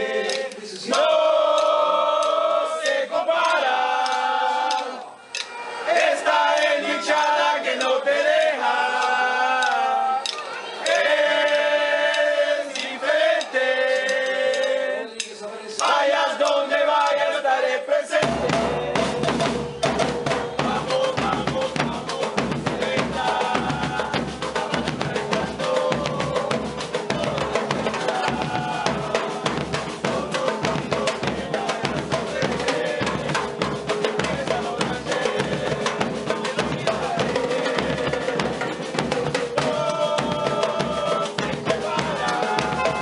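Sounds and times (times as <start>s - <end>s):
crowd chanting: 0.0s - 43.0s
drum band fast beat: 5.9s - 14.8s, 18.1s - 43.0s.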